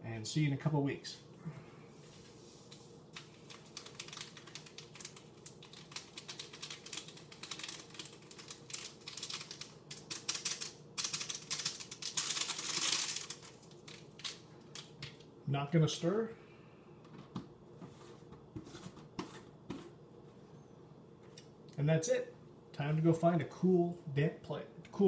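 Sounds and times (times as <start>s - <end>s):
foil packet crinkling: 2.6s - 15.2s.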